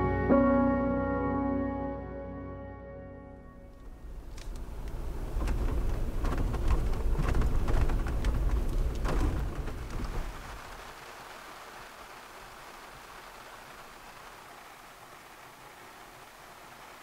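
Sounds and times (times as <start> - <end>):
steady rain: 3.6 - 17.0.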